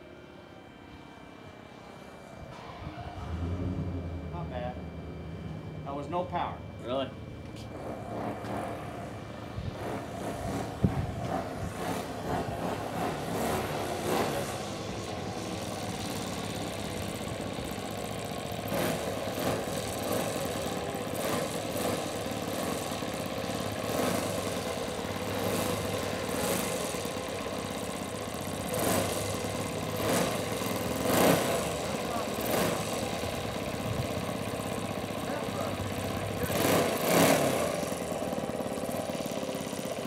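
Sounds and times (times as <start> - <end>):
model plane engine idling: 3.3 - 40.0.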